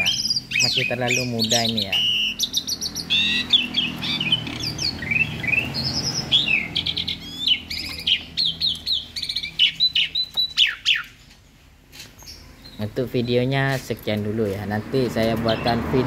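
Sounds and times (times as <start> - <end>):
starling singing: 0.0 - 11.2, 12.2 - 16.0.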